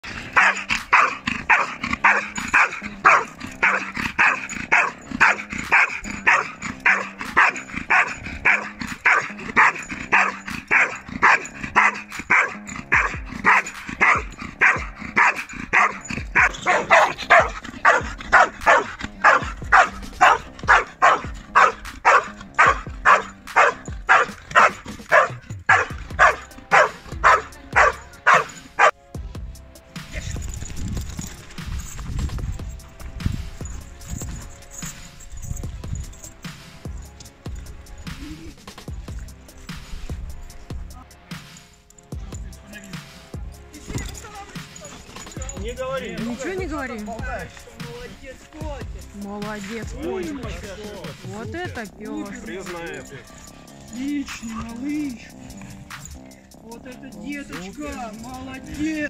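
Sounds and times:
dog barking rhythmically: 0.0 - 29.1, 42.5 - 47.9, 48.8 - 59.0.

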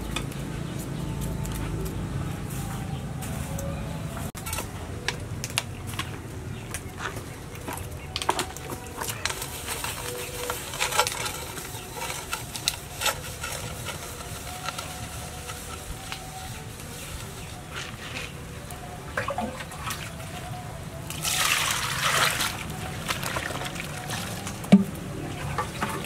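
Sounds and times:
pot scrubbed with sponge: 8.6 - 18.5.

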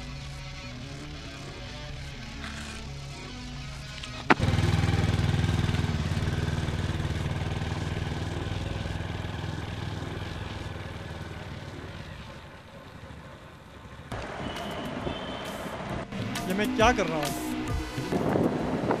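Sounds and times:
motorcycle engine riding away: 1.2 - 16.6.

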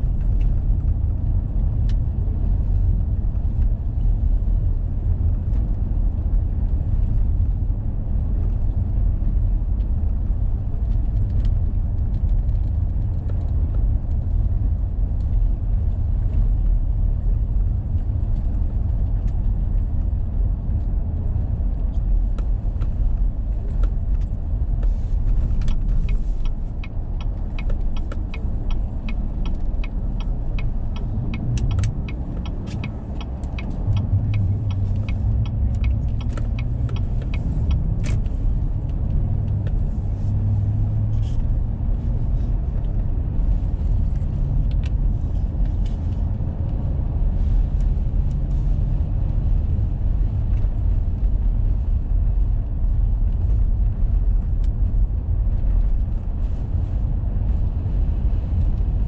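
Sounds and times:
engine and tyre rumble: 0.0 - 59.0
light ticking: 25.0 - 38.3.

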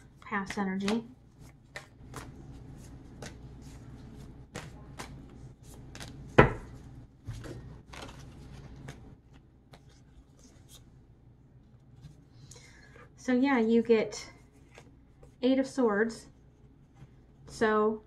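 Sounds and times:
cards being shuffled: 0.4 - 10.9.

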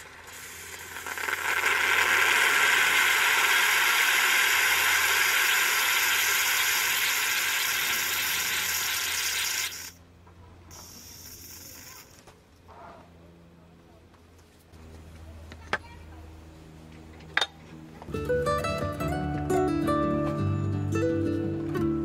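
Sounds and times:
moka pot hissing and sputtering: 0.0 - 10.0, 10.7 - 12.2.

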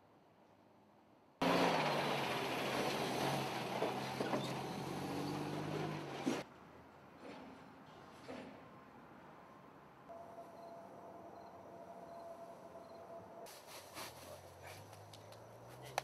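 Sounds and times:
diesel truck engine running: 1.4 - 6.4.

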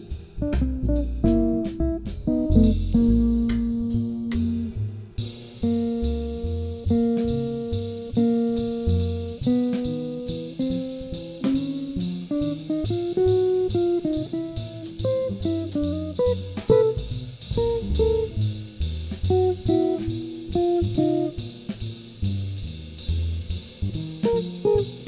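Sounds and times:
acoustic guitar melody: 0.0 - 4.7, 5.7 - 18.4, 19.3 - 21.4, 24.3 - 25.0
plucked upright bass: 0.1 - 25.0.

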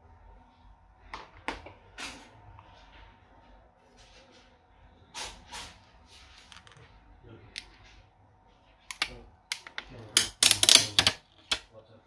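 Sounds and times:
hands handling phone parts clicking: 8.9 - 11.7.

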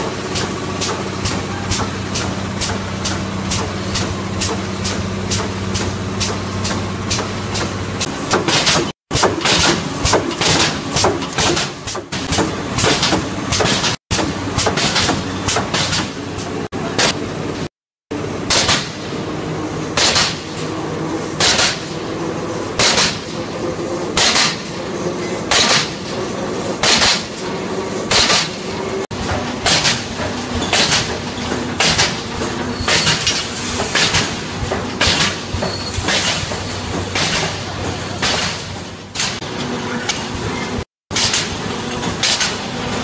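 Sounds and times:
welding machine clanks: 0.0 - 17.7, 18.3 - 43.0
steady machine hum: 12.1 - 40.8.

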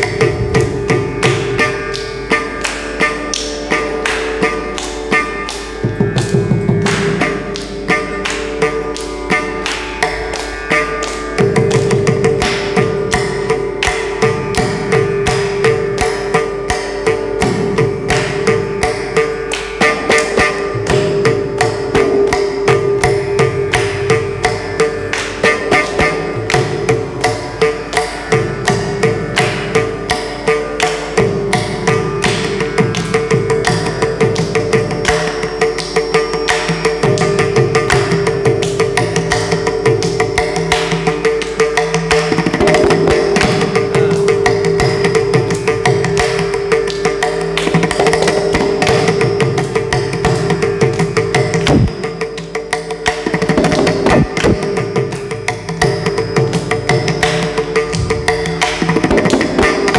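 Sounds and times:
violin melody: 0.0 - 17.8, 51.6 - 52.2, 54.0 - 55.4
rapid hand drum strokes: 47.8 - 59.9.

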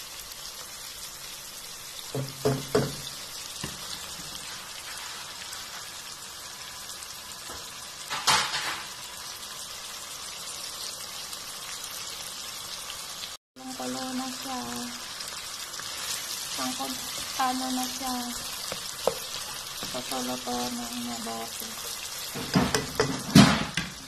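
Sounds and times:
food sizzling in a pan: 0.0 - 24.0
knocks of stirring in a pan: 2.0 - 6.2, 14.5 - 24.0.

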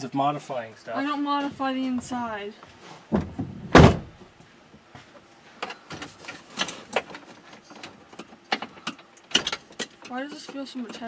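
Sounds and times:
loud thump: 3.1 - 4.2.

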